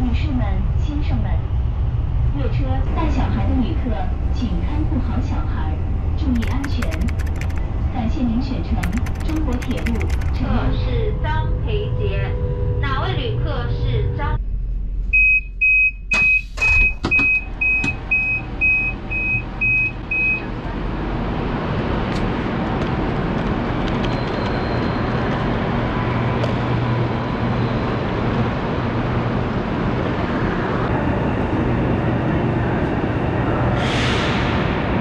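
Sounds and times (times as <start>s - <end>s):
train rumble and low hum: 0.0s - 35.0s
train door warning beeps: 15.1s - 20.5s.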